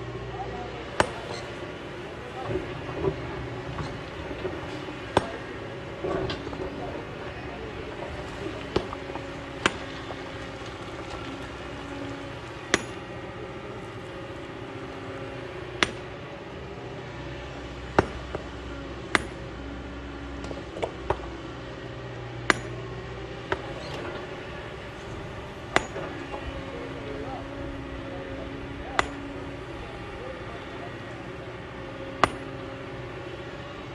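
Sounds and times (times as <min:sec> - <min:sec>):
excavator diesel engine running: 0:00.0 - 0:33.9
hammer striking stone: 0:19.2 - 0:19.4, 0:22.5 - 0:22.8, 0:32.2 - 0:32.5.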